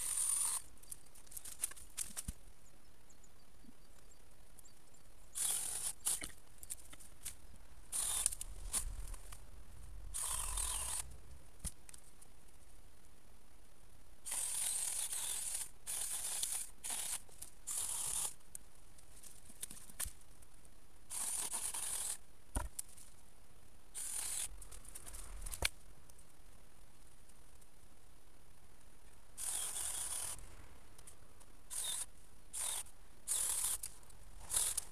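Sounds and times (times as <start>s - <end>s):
rasping and rustling of shoots: 0.0s - 2.4s, 5.4s - 9.5s, 29.4s - 34.9s.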